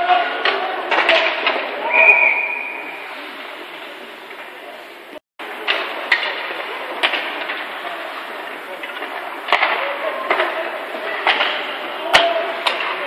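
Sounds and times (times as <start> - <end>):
hockey sticks and puck clacking: 0.0 - 1.8, 5.5 - 13.0.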